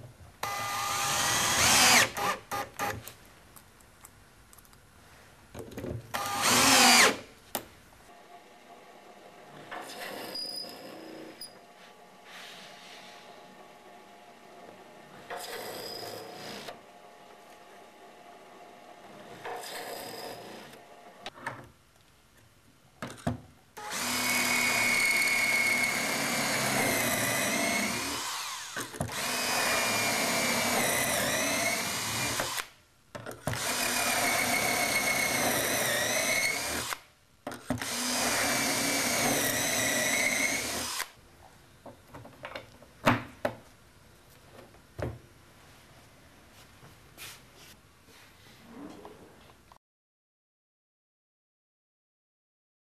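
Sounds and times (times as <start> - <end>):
cordless drill whining: 0.4 - 3.0, 6.2 - 7.2, 23.8 - 32.7, 33.5 - 37.0, 37.8 - 41.2.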